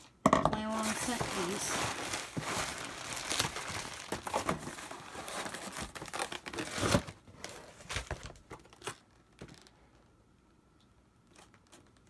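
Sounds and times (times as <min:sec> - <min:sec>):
plastic wrapping and tape crinkling: 0:00.6 - 0:09.8.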